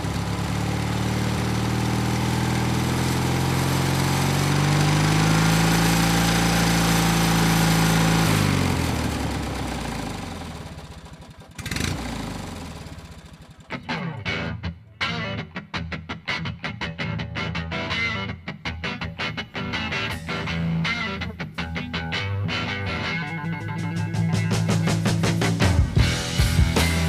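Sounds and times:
vehicle engine running: 0.0 - 14.5, 22.6 - 27.0.

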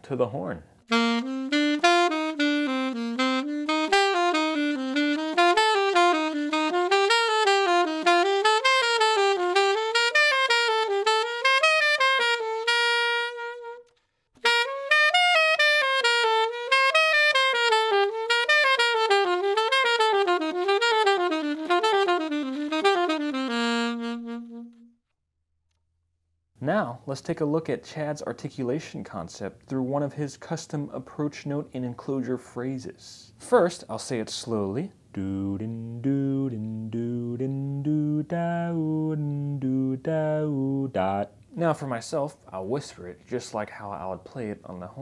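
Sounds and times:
alto saxophone playing scales: 0.8 - 25.1, 35.2 - 41.5.

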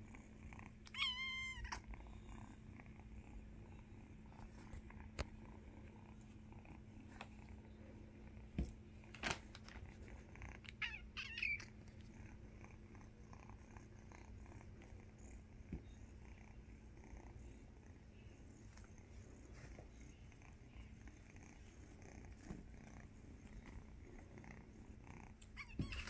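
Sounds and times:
kitten purring: 0.0 - 9.0, 9.8 - 26.0
kitten mewing: 10.7 - 11.7.

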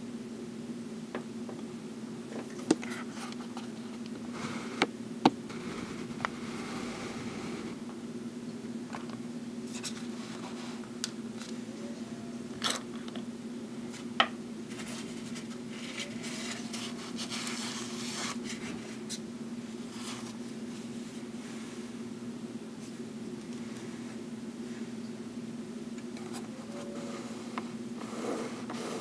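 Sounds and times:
steady low hum: 0.0 - 29.0
soft scraping and rubbing: 26.3 - 29.0.

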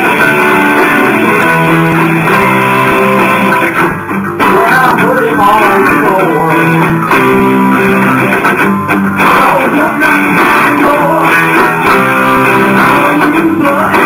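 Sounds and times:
bass guitar: 0.0 - 14.0
drums: 0.0 - 14.0
electric guitars strumming: 0.0 - 14.0.

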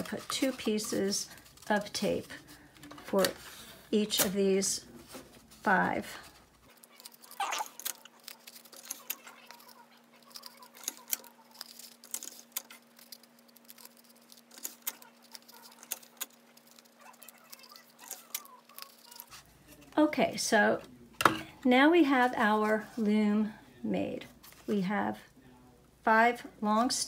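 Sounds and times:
small clicks and crinkles: 5.6 - 20.0.

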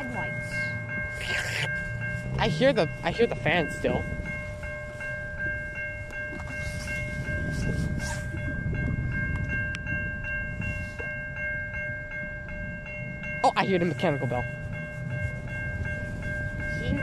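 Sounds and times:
railroad crossing bell ringing: 0.0 - 17.0
wind rumble on microphone: 3.8 - 13.4, 14.4 - 17.0.

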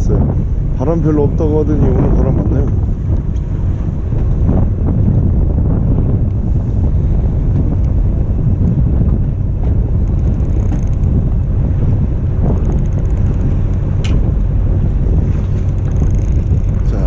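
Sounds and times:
wind buffeting microphone: 0.0 - 17.0
fishing reel ticking: 15.7 - 16.7.

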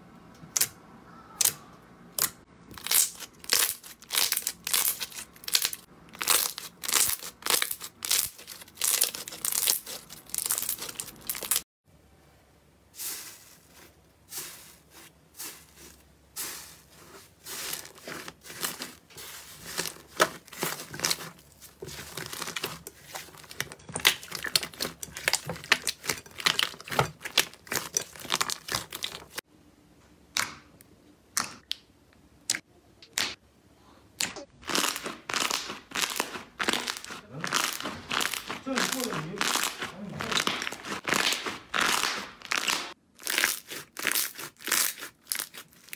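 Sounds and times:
slime crackling and popping: 2.2 - 11.6, 17.6 - 29.4, 34.6 - 45.9.

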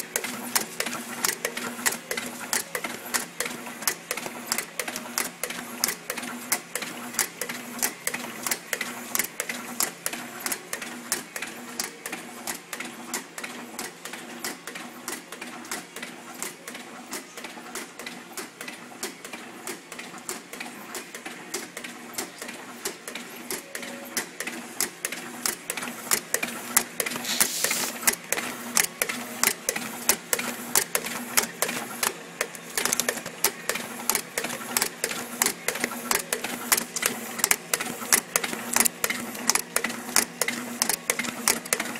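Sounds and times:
labeling machine clicking: 0.0 - 12.1, 21.0 - 41.9.

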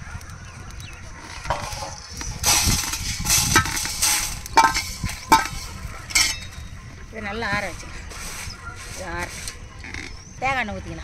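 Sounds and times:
spices rattling: 0.3 - 6.8
metal skimmer scraping spices: 1.2 - 6.6, 7.5 - 10.2.

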